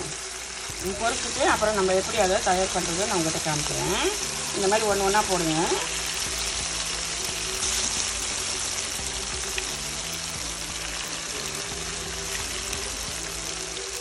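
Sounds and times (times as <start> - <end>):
chicken deep-frying in oil: 0.0 - 14.0.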